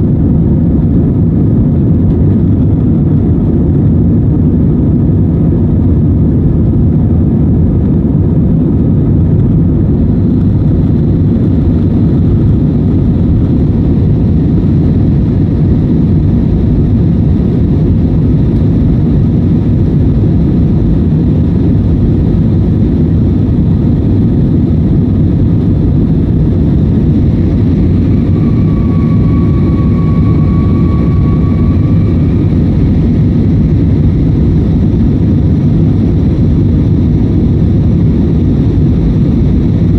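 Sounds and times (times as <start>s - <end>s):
faint steady whine: 0.0s - 39.9s
jet engine roar in cabin: 0.0s - 39.9s
rushing air: 7.4s - 39.9s.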